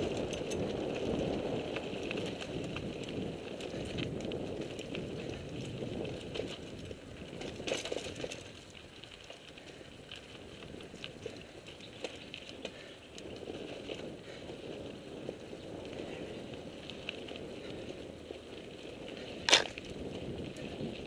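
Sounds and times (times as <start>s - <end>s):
bike rattling: 0.0s - 21.0s
tyres crunching on gravel: 19.2s - 20.2s.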